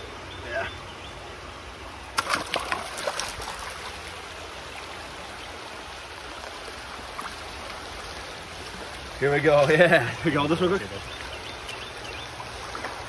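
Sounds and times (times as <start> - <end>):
stream running over rocks: 0.0 - 13.0
sharp splashes and scrapes: 2.1 - 4.3.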